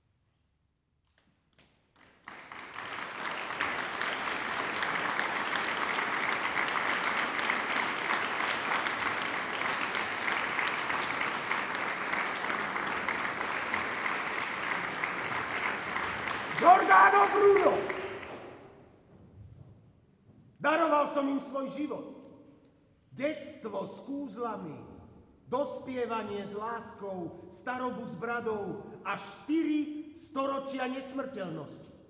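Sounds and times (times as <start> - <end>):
audience applauding: 2.0 - 18.6.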